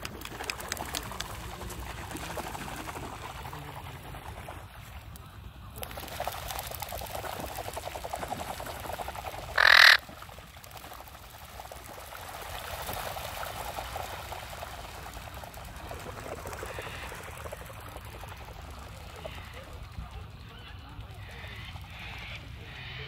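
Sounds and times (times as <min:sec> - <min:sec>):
birds flapping across water: 0:00.0 - 0:23.0
harsh bird cry: 0:09.6 - 0:10.0.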